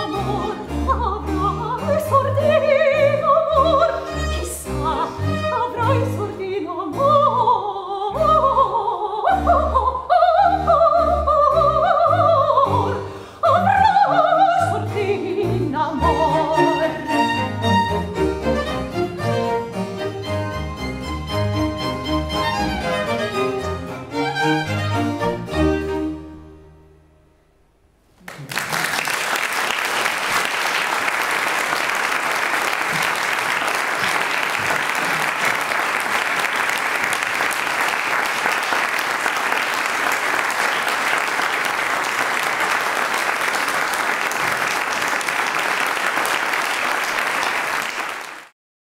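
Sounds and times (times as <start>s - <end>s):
string ensemble chord: 14.7s - 27.7s
audience applause: 28.2s - 48.5s.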